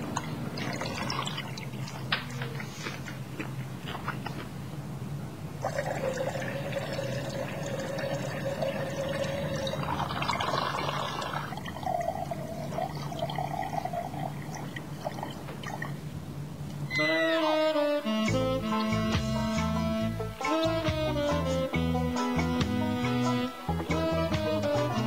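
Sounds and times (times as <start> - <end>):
person urinating into toilet: 0.0 - 2.8, 5.6 - 16.0
string music: 16.9 - 25.0.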